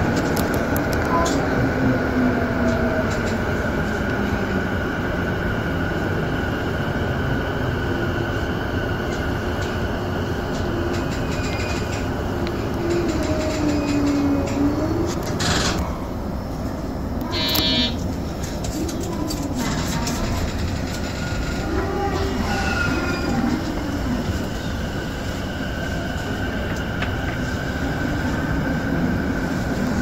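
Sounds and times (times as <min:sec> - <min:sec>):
electric train rolling: 0:00.0 - 0:30.0.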